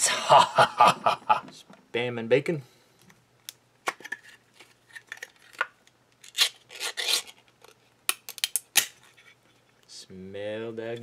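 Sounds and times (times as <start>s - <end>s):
tin lid peeled open: 3.8s - 7.8s.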